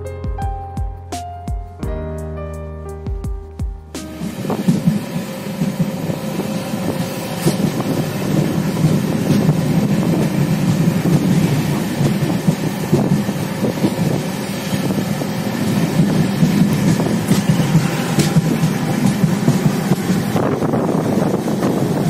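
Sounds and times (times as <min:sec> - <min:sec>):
train wheels rumbling on track: 0:04.0 - 0:22.0
wind on microphone: 0:04.2 - 0:22.0
sharp clacks: 0:07.4 - 0:07.9, 0:15.9 - 0:20.5.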